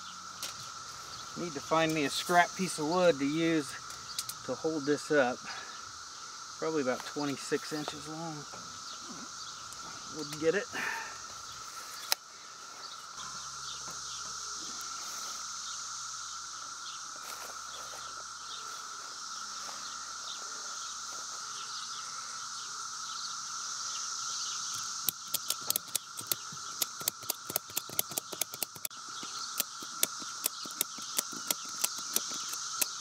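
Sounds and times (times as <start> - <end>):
insect chorus: 0.0 - 33.0
ratchet strap clicking: 24.7 - 33.0.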